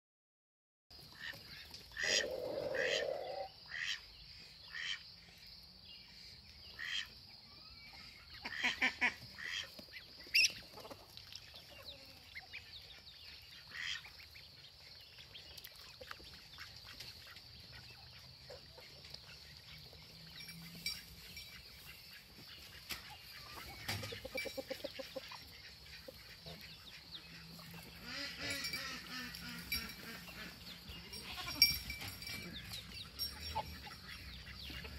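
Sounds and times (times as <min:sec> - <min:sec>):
ducks quacking: 0:01.1 - 0:04.1, 0:04.7 - 0:05.0, 0:06.7 - 0:07.2, 0:08.3 - 0:11.1, 0:13.4 - 0:14.2, 0:21.6 - 0:31.6, 0:33.3 - 0:34.9
goose honking: 0:28.0 - 0:30.6.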